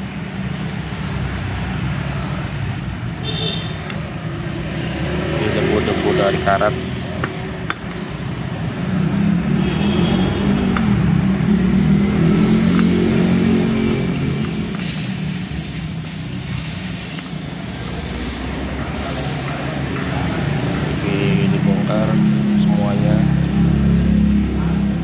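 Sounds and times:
vehicle engine running: 3.8s - 25.0s
short hissing bursts: 12.3s - 19.8s.

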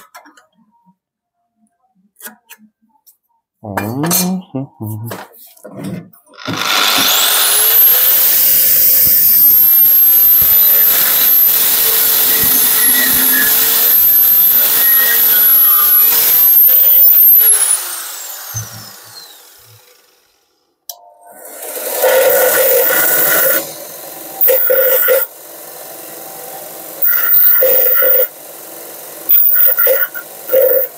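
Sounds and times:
angle grinder cutting steel: 6.4s - 20.3s, 21.4s - 30.9s.

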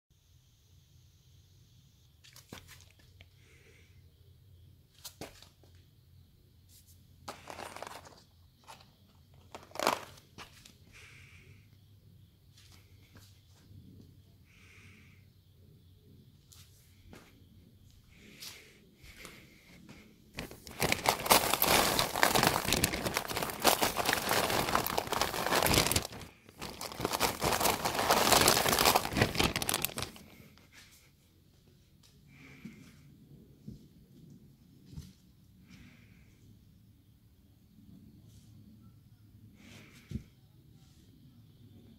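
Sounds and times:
dry crackling rustles: 7.3s - 10.7s, 19.2s - 30.7s.

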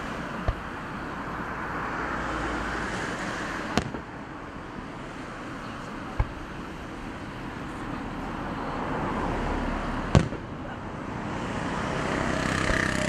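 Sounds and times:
outdoor background noise: 0.0s - 13.0s
firework bang: 3.7s - 4.2s, 10.1s - 10.6s.

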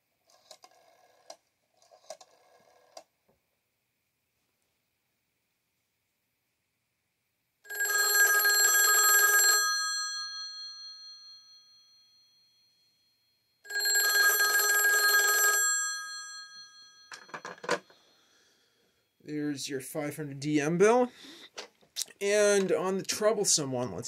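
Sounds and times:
telephone bell ringing: 7.7s - 18.4s
handset clattering hung up: 17.1s - 17.9s.

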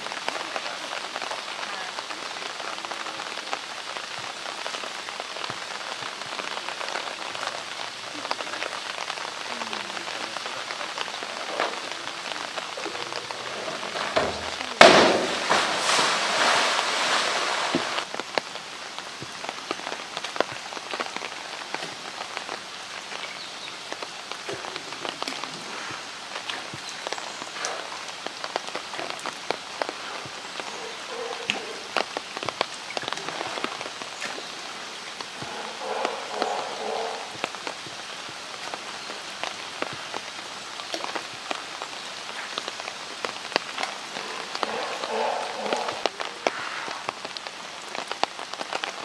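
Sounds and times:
water churning: 6.3s - 18.1s, 23.8s - 47.2s
water hissing: 10.2s - 18.1s, 21.9s - 40.4s, 43.4s - 47.4s
loud splash: 13.5s - 18.1s.

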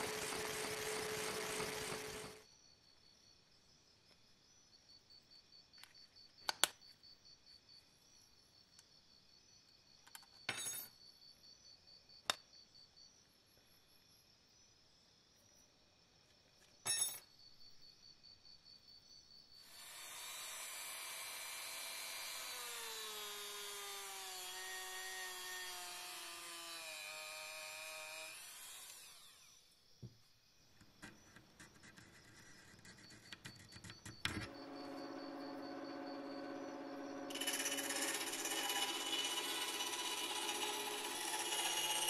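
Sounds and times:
bandsaw blade cutting wood: 0.0s - 2.4s, 19.7s - 29.4s, 34.4s - 42.0s
bandsaw motor humming: 0.0s - 2.4s, 19.7s - 29.5s, 34.4s - 42.0s
machine whine falling in pitch: 34.3s - 41.0s.

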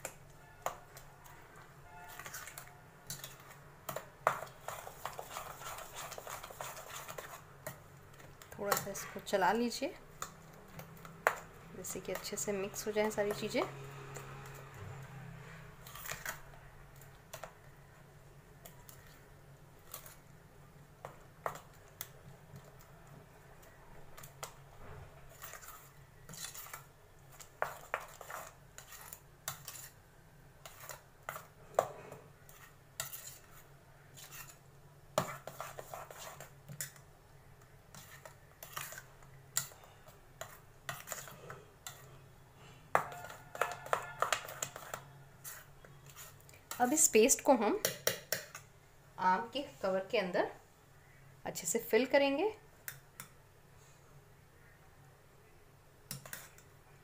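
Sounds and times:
spoon scraping metal bowl: 0.1s - 7.8s, 11.2s - 14.7s, 15.4s - 17.5s, 25.3s - 30.0s, 30.6s - 34.6s, 35.2s - 37.0s, 37.9s - 48.6s, 56.1s - 56.7s.

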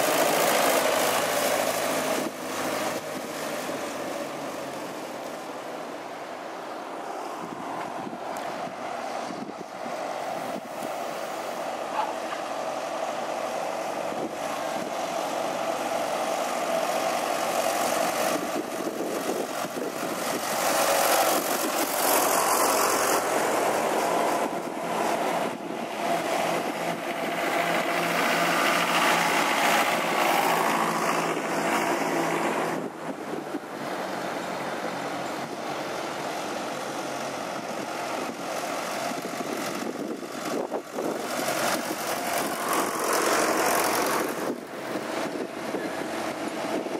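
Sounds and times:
tractor engines driving past: 0.0s - 46.9s.

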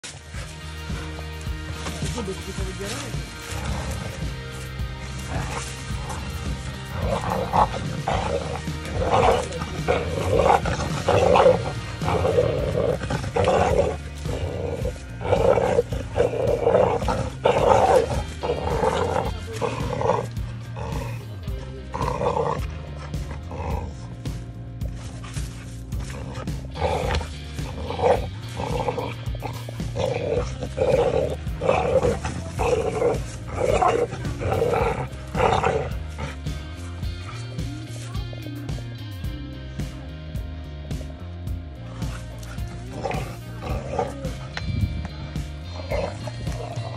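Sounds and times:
background music: 0.0s - 46.9s
dog growling: 1.7s - 38.9s, 41.7s - 46.9s.

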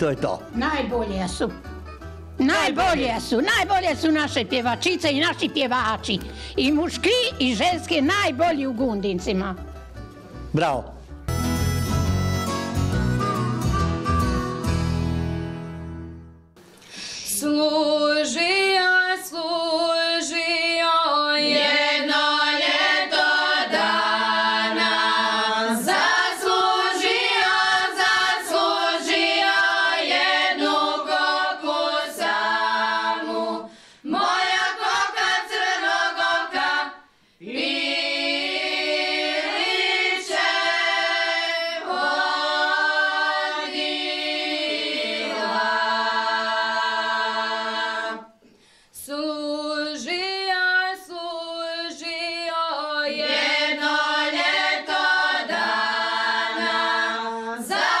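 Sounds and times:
women singing a cappella: 17.3s - 58.0s.

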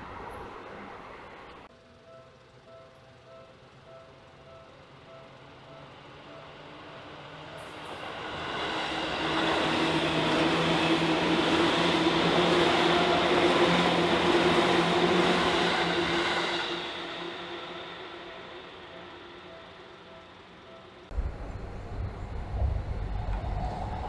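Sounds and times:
electric train passing: 0.0s - 24.0s.

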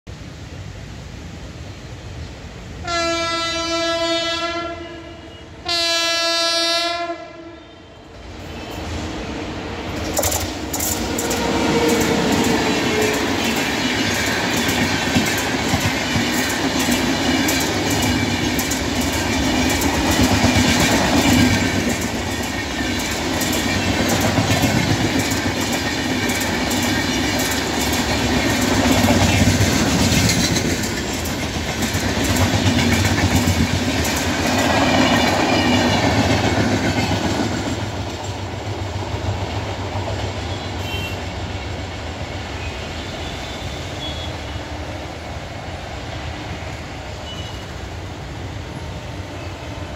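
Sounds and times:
train wheels rumbling on rail: 0.1s - 49.9s
clickety-clack over rail joints: 9.9s - 41.4s.

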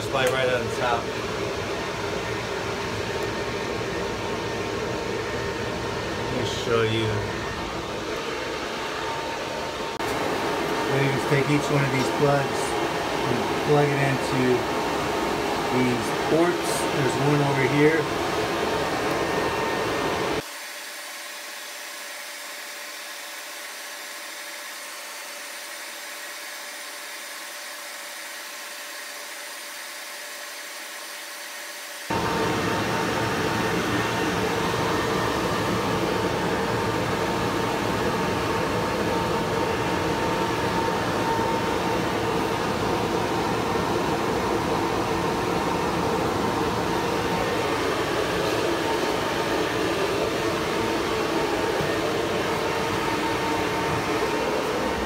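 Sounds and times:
cooling fans whooshing: 0.0s - 55.0s
faint steady whine: 32.1s - 55.0s.

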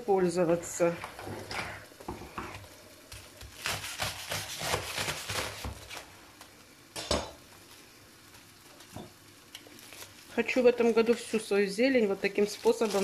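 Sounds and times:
knife cutting strokes on board: 3.2s - 6.0s
foil crinkling: 8.4s - 13.0s.

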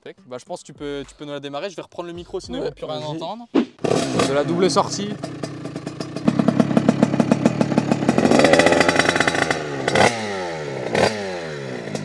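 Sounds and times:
two-stroke engine revving: 3.8s - 12.0s.

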